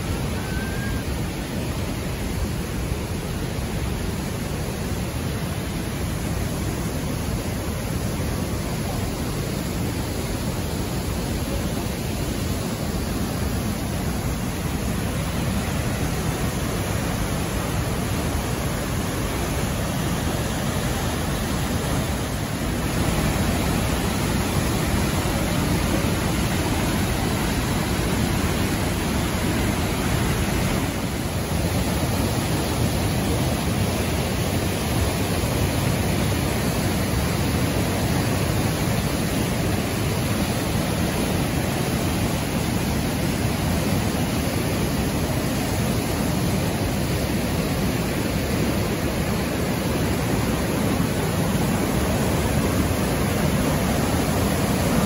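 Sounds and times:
creek water rushing over rocks: 0.0s - 55.0s.

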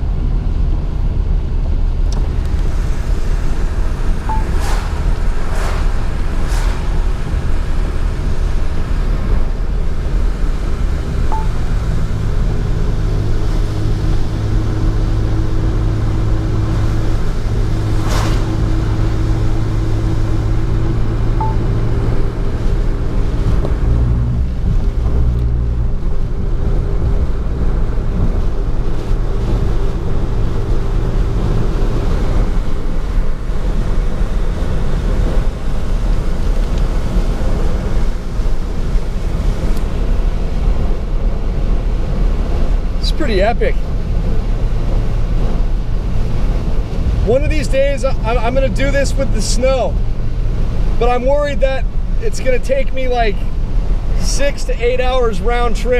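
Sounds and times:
engine and tyres rumbling: 0.0s - 55.9s
rain and road spray hissing: 2.2s - 21.2s.

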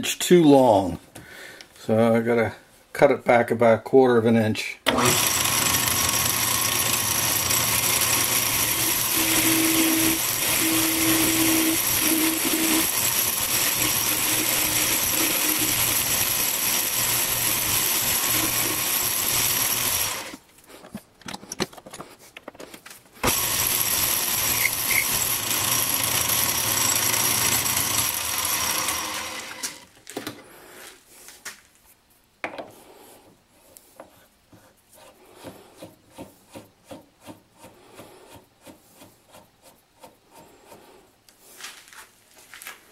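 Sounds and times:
metal lathe cutting: 4.9s - 20.4s, 23.2s - 29.8s.

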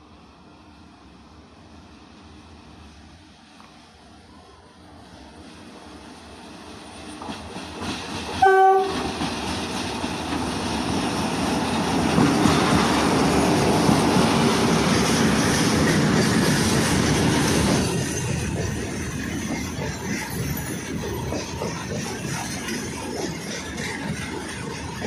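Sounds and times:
train wheels rumbling on rails: 0.1s - 25.0s
train horn blast: 8.4s - 9.1s.

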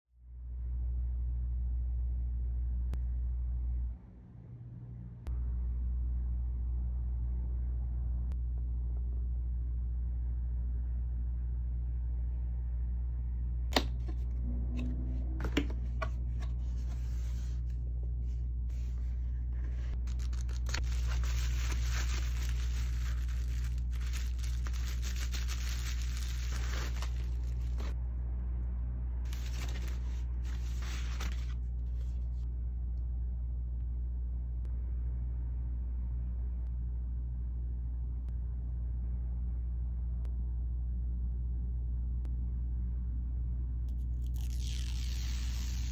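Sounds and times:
steady low hum: 0.1s - 45.9s
bubble wrap crinkling: 20.0s - 28.0s, 29.3s - 31.6s, 44.2s - 45.9s.

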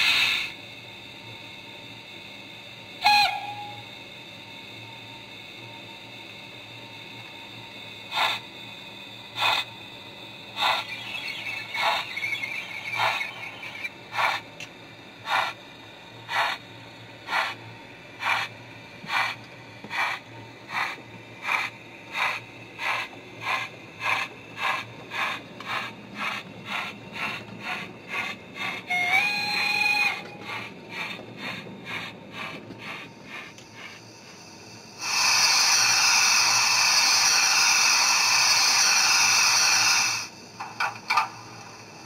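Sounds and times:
steam locomotive chuffs: 0.0s - 0.8s, 2.0s - 42.0s
train whistle: 3.0s - 4.0s, 28.7s - 30.7s.

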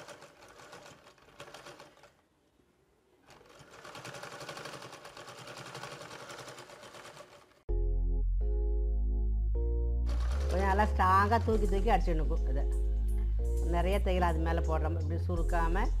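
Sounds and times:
sewing machine stitching: 0.0s - 2.3s, 3.2s - 7.6s, 10.1s - 11.4s.

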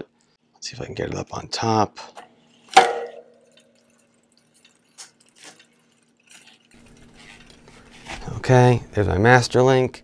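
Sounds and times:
sharp metallic clack: 2.7s - 4.0s.

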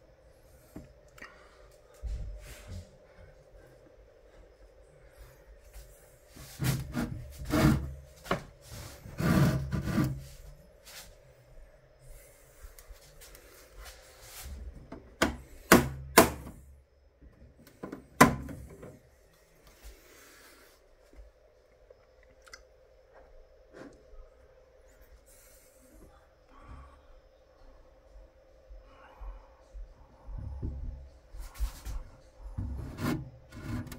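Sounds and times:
plastic rubbing and scraping: 6.4s - 10.4s, 32.6s - 33.9s.

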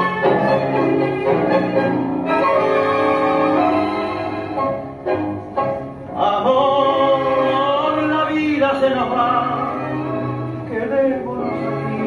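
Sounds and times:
tango orchestra: 0.0s - 12.0s
person singing with vibrato: 6.1s - 12.0s.

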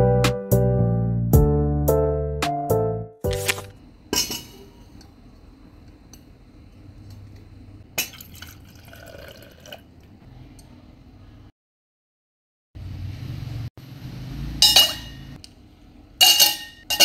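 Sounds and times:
coffee pouring into steel tumbler: 8.1s - 9.9s.

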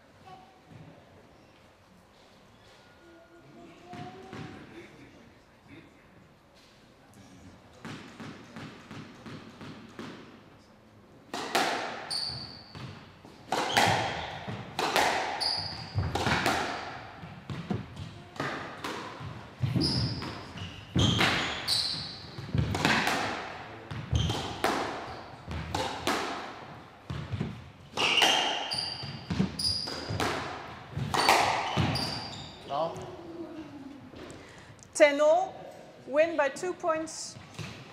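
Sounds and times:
squash ball hits: 7.8s - 10.4s, 11.3s - 32.3s, 37.4s - 37.9s
shoes squeaking on court floor: 12.0s - 23.1s, 23.9s - 26.1s, 27.1s - 33.2s.

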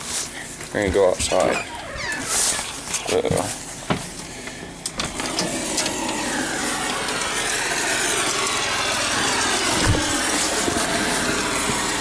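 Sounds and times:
engine running steadily: 4.0s - 12.0s
broad hiss: 5.7s - 12.0s.

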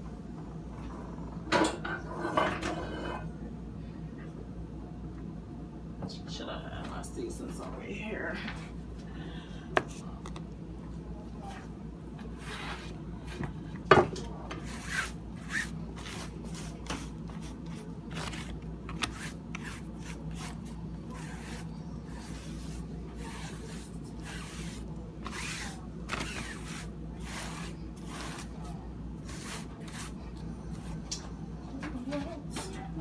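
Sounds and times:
steady low hum: 0.0s - 33.0s
pan and cloth rubbing on board: 14.6s - 28.5s.

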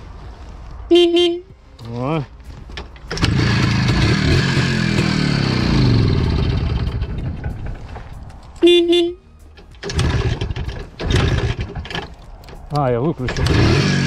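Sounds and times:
short horn beep: 0.9s - 1.5s, 8.6s - 9.4s
two-stroke motorcycle engine running: 3.1s - 7.6s, 9.8s - 11.9s, 13.3s - 14.0s.

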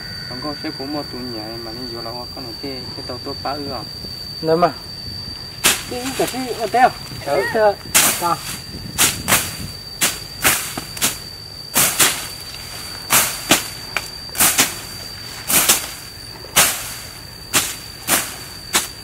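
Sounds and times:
machetes chopping grass: 5.6s - 6.7s, 8.0s - 11.2s, 11.8s - 19.0s.

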